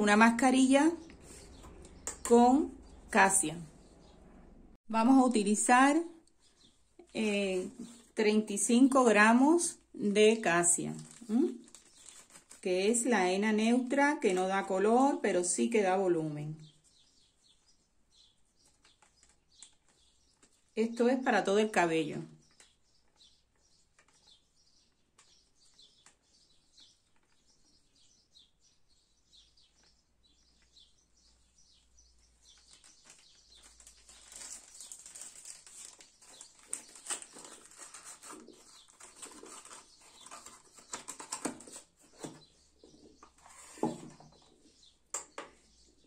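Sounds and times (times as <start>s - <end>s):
packet crinkling and rustling: 10.3s - 12.7s, 18.6s - 20.8s, 22.4s - 27.5s, 32.3s - 42.4s.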